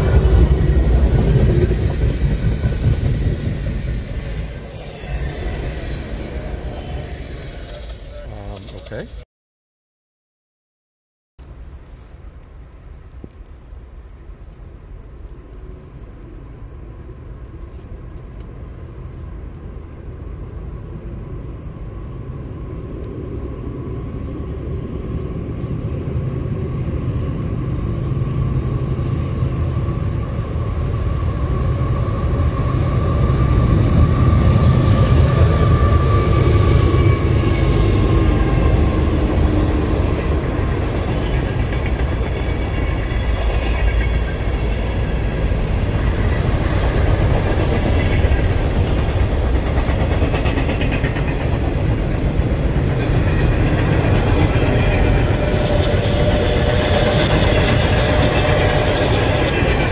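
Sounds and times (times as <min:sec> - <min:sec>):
freight cars rumbling past: 0:00.0 - 0:09.1, 0:23.4 - 0:59.9
diesel locomotive engine rumble: 0:00.0 - 0:09.2, 0:11.4 - 0:59.9.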